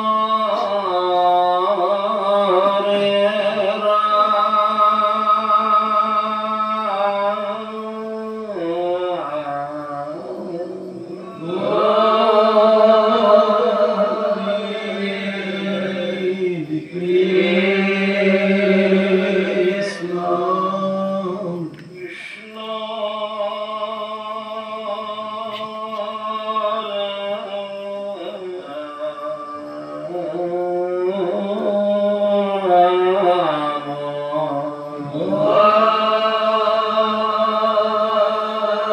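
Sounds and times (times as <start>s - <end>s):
voices chanting: 0.0s - 38.9s.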